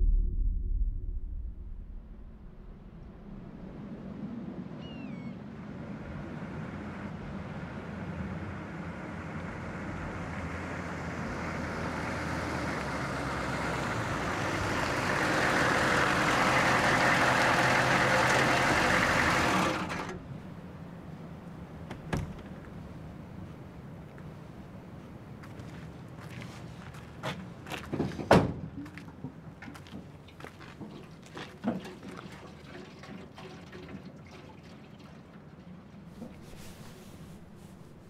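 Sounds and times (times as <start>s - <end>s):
pickup truck approaching: 5.9s - 21.8s.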